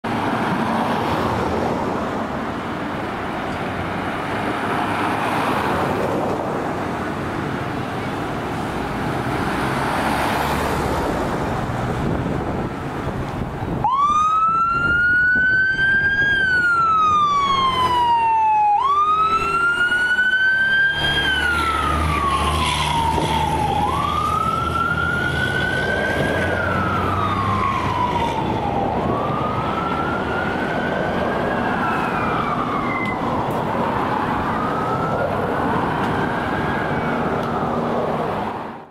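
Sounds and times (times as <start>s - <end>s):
fire truck engine rumble: 0.0s - 38.9s
road noise: 0.0s - 38.9s
electronic siren wailing: 13.8s - 37.9s.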